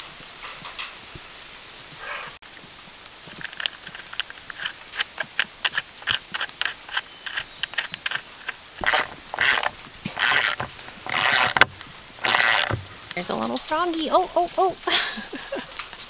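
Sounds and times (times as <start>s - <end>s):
ratchet wrench clicking: 3.4s - 12.8s.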